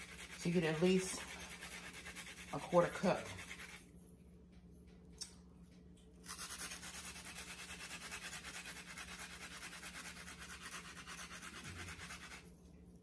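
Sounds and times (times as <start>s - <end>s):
onion rasping on hand grater: 0.0s - 3.8s, 6.3s - 12.4s.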